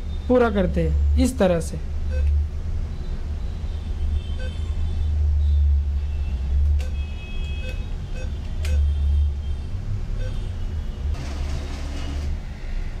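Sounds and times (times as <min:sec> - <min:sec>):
short electronic beeps: 0:02.1 - 0:03.8, 0:06.8 - 0:09.0, 0:10.2 - 0:10.5.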